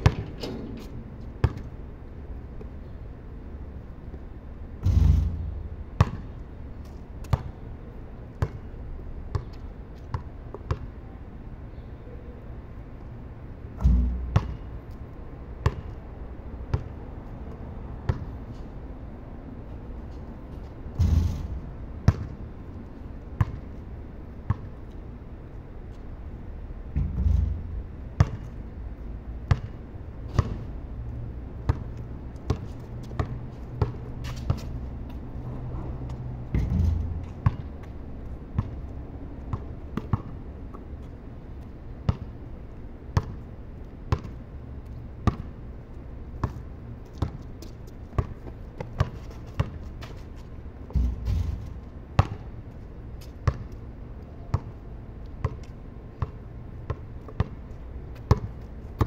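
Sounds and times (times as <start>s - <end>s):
basketball bouncing on concrete: 0.0s - 0.3s, 1.4s - 1.7s, 4.8s - 6.4s, 7.2s - 7.6s, 8.4s - 8.7s, 9.3s - 10.9s, 13.8s - 14.9s, 15.6s - 16.0s, 16.7s - 17.0s, 18.0s - 18.4s, 21.0s - 22.4s, 23.4s - 23.7s, 24.5s - 24.7s, 27.0s - 28.6s, 29.4s - 30.6s, 31.7s - 34.8s, 36.1s - 37.9s, 38.6s - 38.9s, 39.5s - 40.8s, 42.1s - 42.3s, 43.2s - 43.4s, 44.1s - 44.4s, 45.2s - 45.5s, 46.4s - 50.2s, 50.9s - 52.5s, 53.2s - 53.8s, 54.5s - 54.8s, 55.4s - 59.0s
heavy low thumps: 26.9s - 28.1s.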